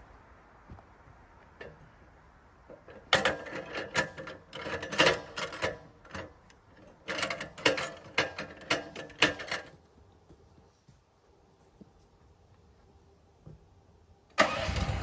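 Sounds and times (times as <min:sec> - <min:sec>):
metal clamps clicking and clanking: 0:02.7 - 0:09.7.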